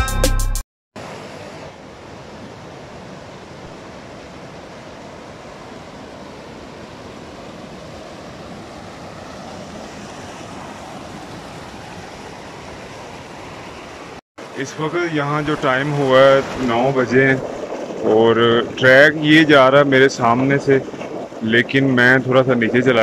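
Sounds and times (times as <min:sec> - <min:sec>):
stream rushing over rocks: 0:02.8 - 0:21.0.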